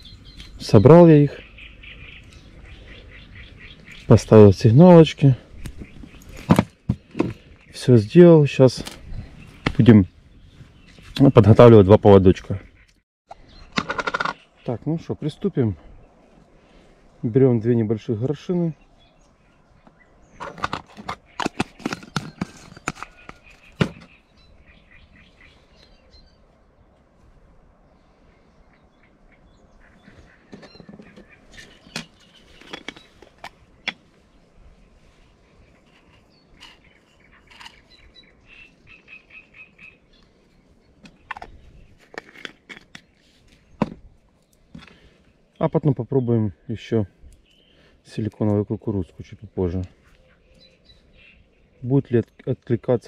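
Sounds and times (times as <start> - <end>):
faint bird chirps: 0.0 - 4.5, 33.8 - 42.0, 49.2 - 52.4
plastic parts clicking and knocking: 13.8 - 14.4, 20.4 - 24.1, 30.5 - 34.0.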